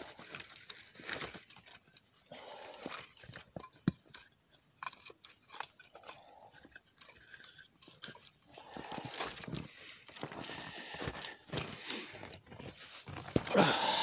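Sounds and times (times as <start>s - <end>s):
boots crunching in snow: 8.6s - 14.0s.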